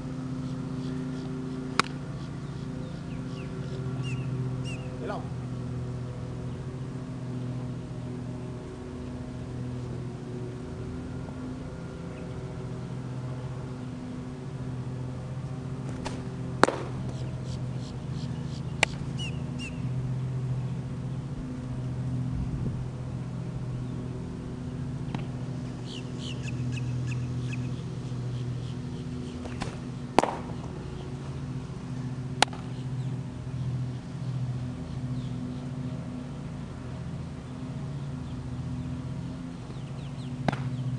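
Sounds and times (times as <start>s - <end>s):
low hum: 0.0s - 40.9s
birds chirping: 0.1s - 22.3s, 23.2s - 40.9s
baseball smacking into glove: 1.8s - 2.0s, 15.8s - 17.2s, 29.4s - 30.6s, 32.4s - 32.7s, 40.4s - 40.8s.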